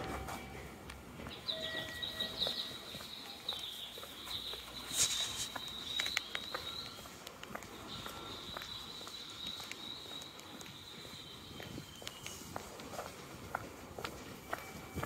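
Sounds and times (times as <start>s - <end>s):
footsteps ticking: 0.0s - 15.0s
high bird-like chirping: 1.3s - 12.6s.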